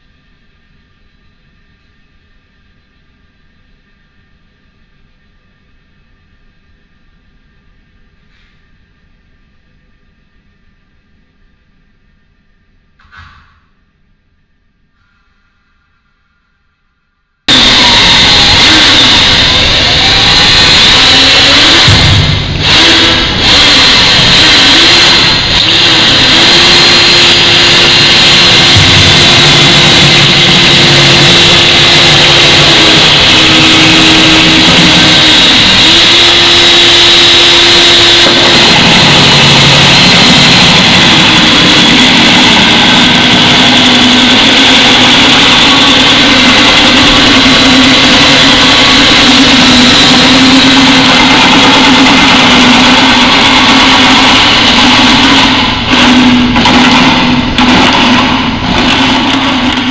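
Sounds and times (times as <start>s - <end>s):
cordless drill motor whine: 17.5s - 56.4s
steady rushing noise: 17.5s - 59.9s.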